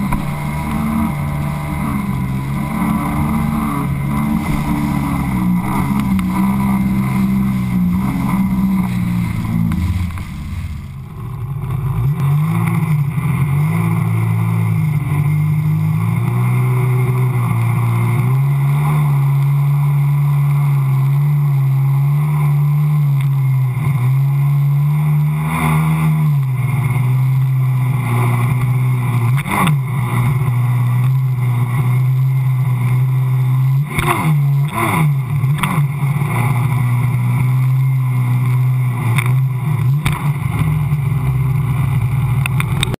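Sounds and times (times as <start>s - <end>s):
rushing water spray: 0.0s - 11.2s
watercraft engine drone: 0.0s - 43.0s.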